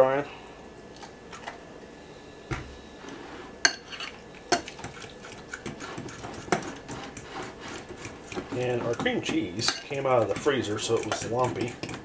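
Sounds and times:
utensil stirring thick mixture: 3.8 - 12.0.

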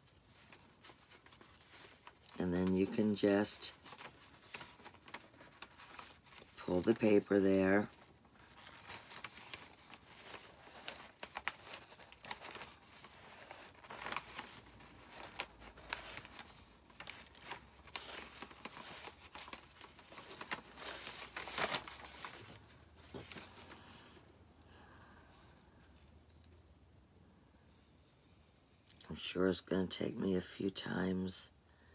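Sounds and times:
paper crinkling and tearing: 0.0 - 24.0.

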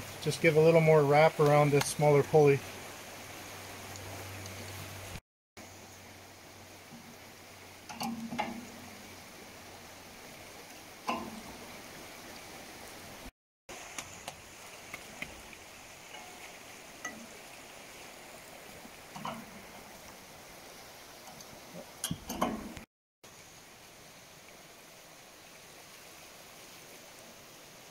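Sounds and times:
fast river rushing: 0.0 - 5.2, 6.1 - 22.8.

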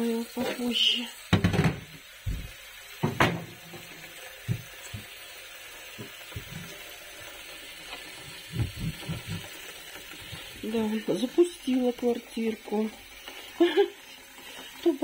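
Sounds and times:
tap water pouring into jug: 0.4 - 15.0
knocks and clunks: 1.4 - 5.1, 8.4 - 9.5.

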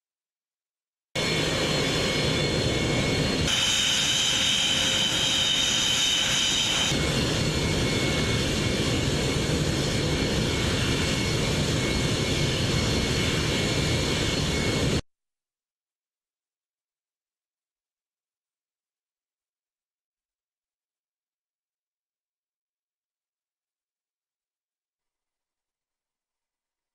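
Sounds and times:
jet engines running with whine: 1.2 - 15.0.

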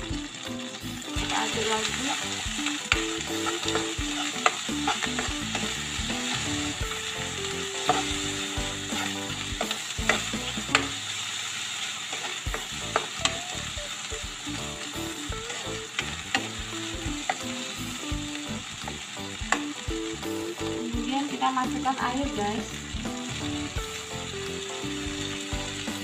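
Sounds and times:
hot oil sizzling: 0.0 - 26.0
metal spatula scraping a wok: 7.8 - 9.3.

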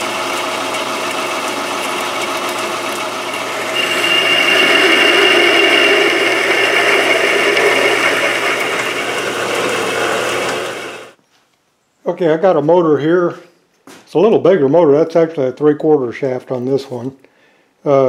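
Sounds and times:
drill cutting into steel: 0.0 - 11.2
metal lathe running: 0.0 - 11.2
steady high whine: 3.2 - 11.2.

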